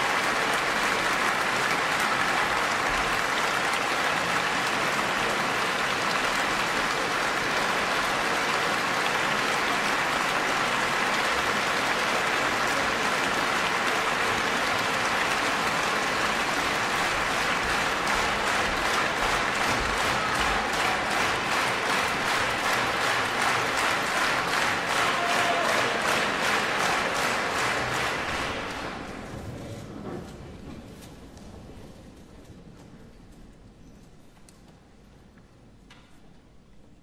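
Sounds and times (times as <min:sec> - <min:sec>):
audience applauding: 0:00.0 - 0:29.3.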